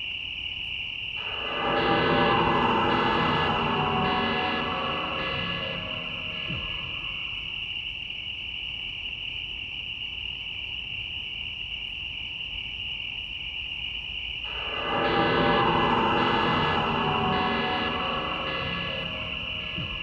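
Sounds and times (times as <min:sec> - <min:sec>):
crickets chirring: 0:00.0 - 0:20.0
low rumble: 0:01.2 - 0:07.4, 0:14.5 - 0:20.0
deep drone: 0:01.2 - 0:07.5, 0:14.5 - 0:20.0.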